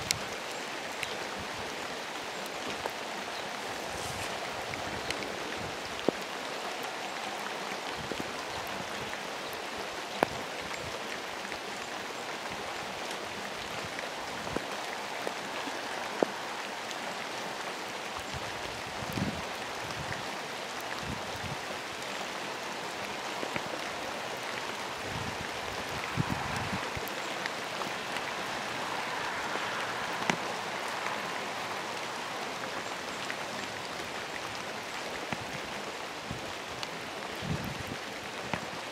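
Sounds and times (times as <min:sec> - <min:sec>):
steady rain hiss: 0:00.0 - 0:38.9.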